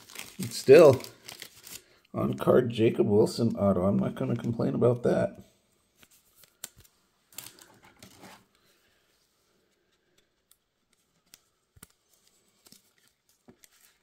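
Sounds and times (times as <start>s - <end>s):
cards and packaging rustling: 0.0s - 2.4s, 5.9s - 8.7s, 9.6s - 14.0s.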